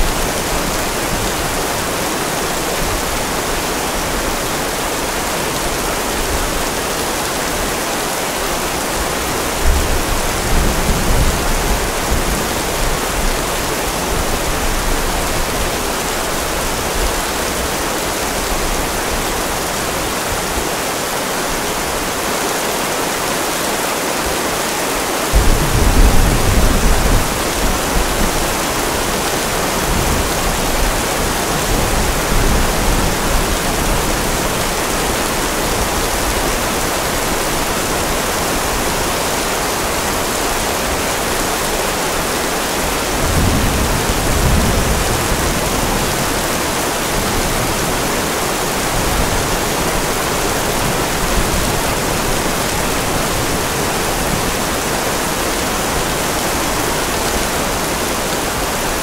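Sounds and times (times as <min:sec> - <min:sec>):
heavy rain hissing: 0:00.0 - 0:59.0
distant thunder rumble: 0:25.3 - 0:34.6.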